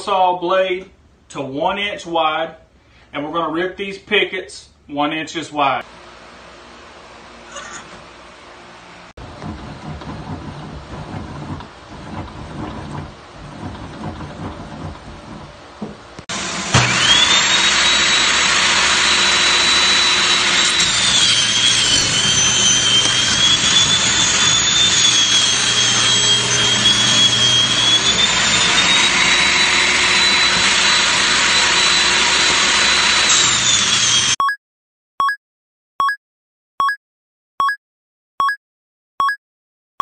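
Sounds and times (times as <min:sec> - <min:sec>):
table saw whining: 0:09.2 - 0:34.4.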